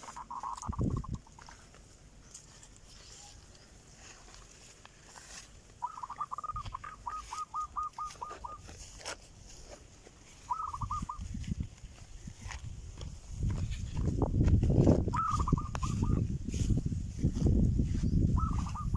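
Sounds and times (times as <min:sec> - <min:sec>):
bird calling in clipped notes: 0:00.0 - 0:11.5, 0:15.0 - 0:16.3, 0:18.4 - 0:18.9.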